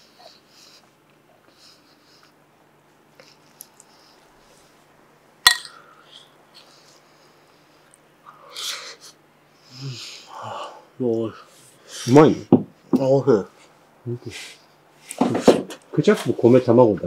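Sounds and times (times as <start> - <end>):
quiet eating: 0.0 - 12.1
spoon clinking against plate: 5.5 - 5.8.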